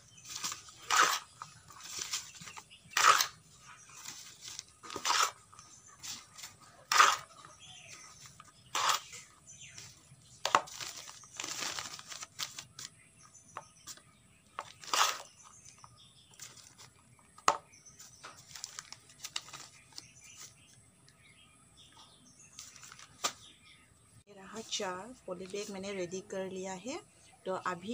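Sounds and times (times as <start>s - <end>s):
trowel scraping in metal basin: 4.9s - 5.4s, 6.9s - 7.3s
plastic bags crinkling: 10.5s - 12.9s, 18.4s - 20.0s.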